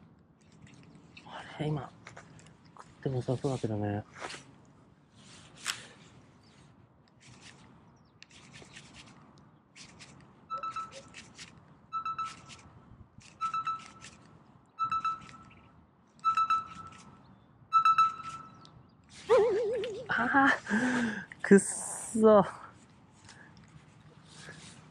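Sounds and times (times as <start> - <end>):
beeping tone: 10.5 - 11.1, 11.9 - 12.5, 13.4 - 14.0, 14.8 - 15.6, 16.2 - 17.1, 17.7 - 18.6.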